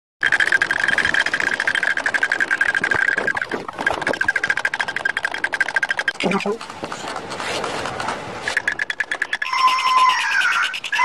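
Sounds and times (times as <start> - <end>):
toy drums clattering: 0.2 - 11.0.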